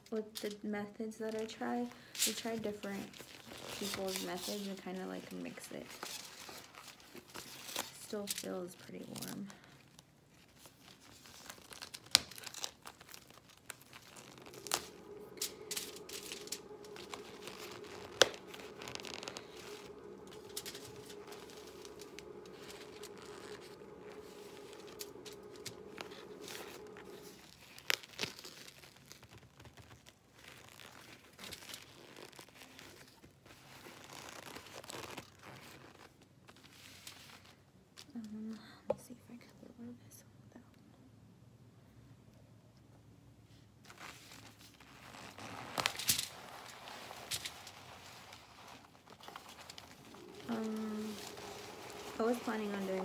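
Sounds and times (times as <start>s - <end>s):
cardboard tearing and crumpling: 9.8s - 24.2s, 24.8s - 36.8s, 43.9s - 53.0s.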